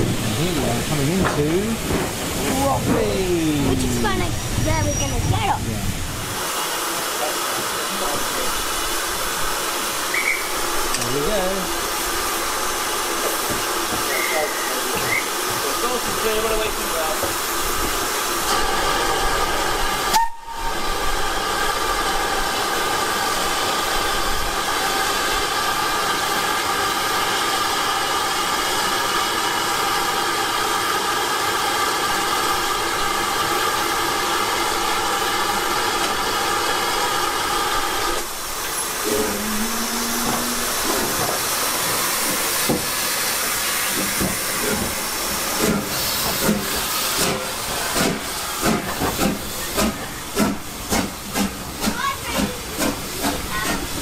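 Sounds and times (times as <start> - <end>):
steam locomotive hissing: 0.0 - 54.0
ringing whistle-like tone: 10.1 - 10.5.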